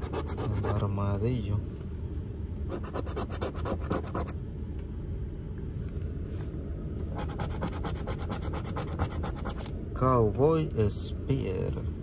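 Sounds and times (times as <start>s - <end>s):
coin scratching a ticket: 0.0s - 0.9s, 2.7s - 4.3s, 7.2s - 9.7s.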